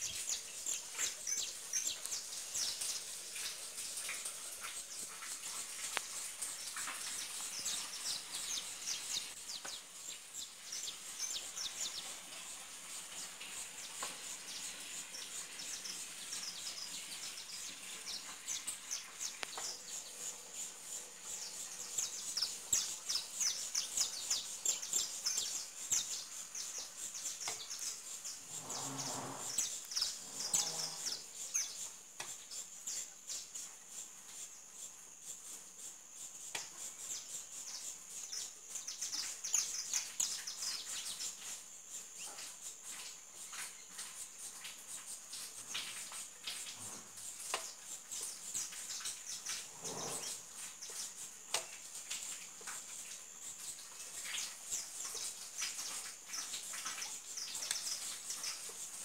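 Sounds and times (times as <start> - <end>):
high insect drone: 0.0 - 59.0
small birds chirping: 0.0 - 59.0.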